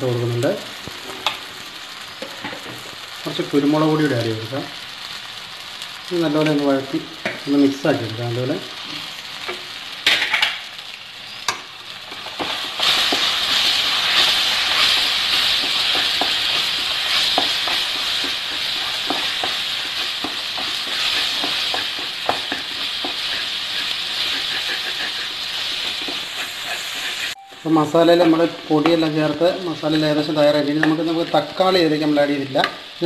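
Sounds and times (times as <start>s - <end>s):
onions frying in oil: 0.0s - 33.0s
spatula scraping pan: 11.5s - 27.4s.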